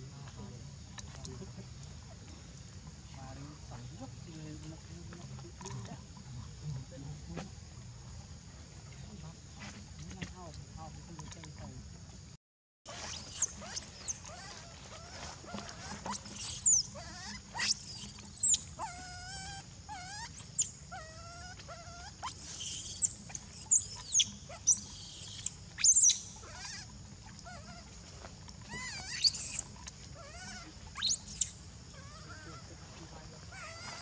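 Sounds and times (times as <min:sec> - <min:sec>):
young monkey squealing: 0:12.9 - 0:28.0, 0:28.6 - 0:32.7, 0:33.4 - 0:34.0
low whining calls: 0:12.9 - 0:34.0.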